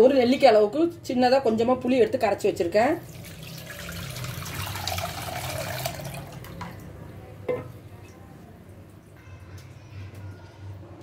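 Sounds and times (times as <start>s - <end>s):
water trickling into clay pot: 3.0s - 9.8s.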